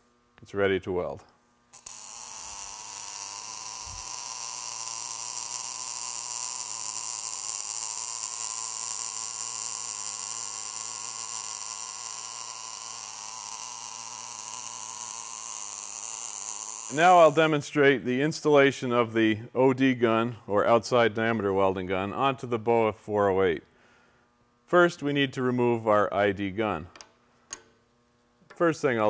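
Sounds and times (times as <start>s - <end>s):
welding arc hissing buzz: 0.0s - 29.0s.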